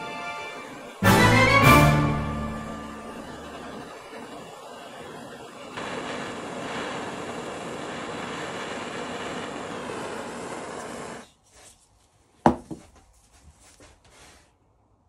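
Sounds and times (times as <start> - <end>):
heat gun blowing: 2.5 - 11.3.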